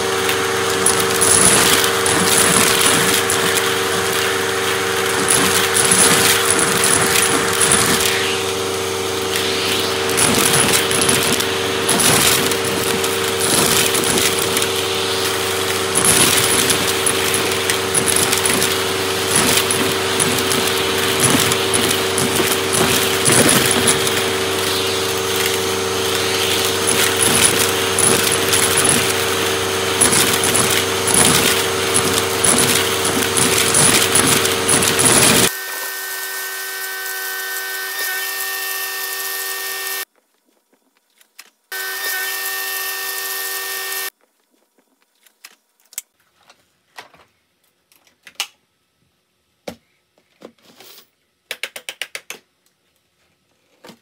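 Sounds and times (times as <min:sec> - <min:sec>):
vacuum cleaner motor whine: 0:00.0 - 0:40.1, 0:41.7 - 0:44.1.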